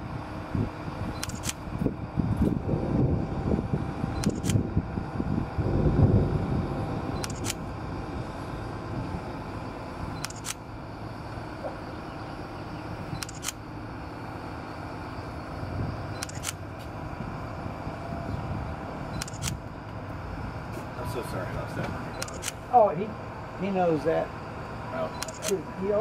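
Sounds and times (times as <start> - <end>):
steady low rumble: 0.0 - 26.0
camera shutter clicking: 1.2 - 1.6, 4.2 - 4.6, 7.2 - 7.6, 10.2 - 10.6, 13.2 - 13.6, 16.2 - 16.6, 19.2 - 19.6, 22.2 - 22.6, 25.2 - 25.6.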